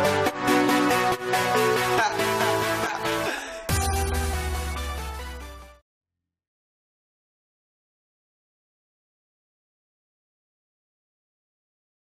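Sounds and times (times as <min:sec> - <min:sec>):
electronic background music: 0:00.0 - 0:05.8.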